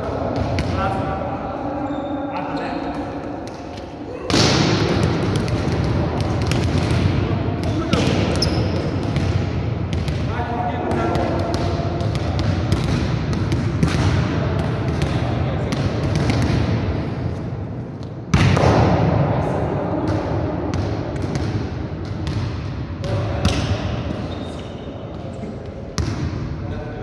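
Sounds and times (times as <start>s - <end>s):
balls bouncing in echoing hall: 0.0s - 27.0s
loud ball hit: 4.3s - 5.8s.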